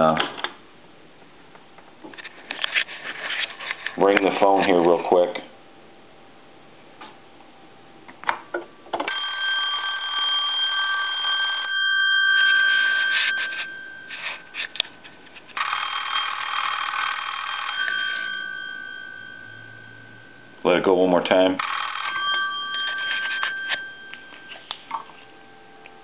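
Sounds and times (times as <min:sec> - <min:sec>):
telephone bell ringing: 0:09.1 - 0:14.9, 0:15.6 - 0:20.7, 0:21.6 - 0:26.0.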